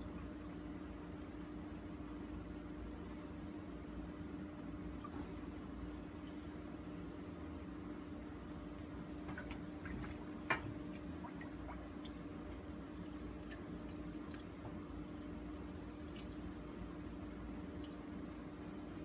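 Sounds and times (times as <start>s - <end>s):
steady hum: 0.0s - 19.0s
water dripping in steel sink: 5.0s - 8.1s, 9.2s - 15.3s.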